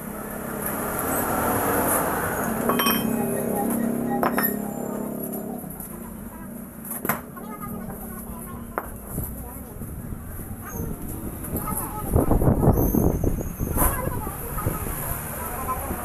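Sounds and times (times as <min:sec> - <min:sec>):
hammer clinking on steel: 0:02.7 - 0:03.2.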